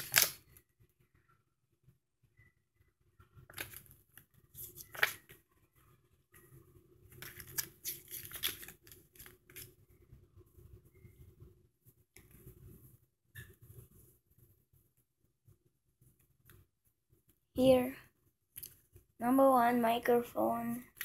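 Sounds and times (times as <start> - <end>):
paper rustling and crinkling: 0.0 - 0.5, 3.5 - 5.4, 7.1 - 9.8.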